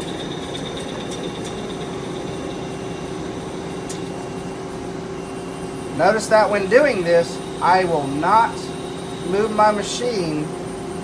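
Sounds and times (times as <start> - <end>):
lathe humming with faint whine: 0.0 - 11.0.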